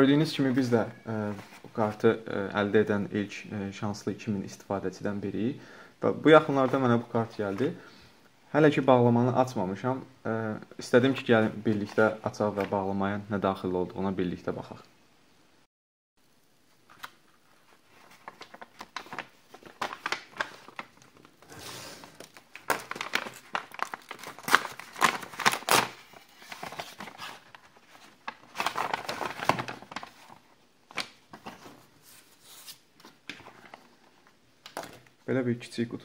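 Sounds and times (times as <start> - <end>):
paper envelope tearing: 21.5 - 27.6, 28.4 - 30.4.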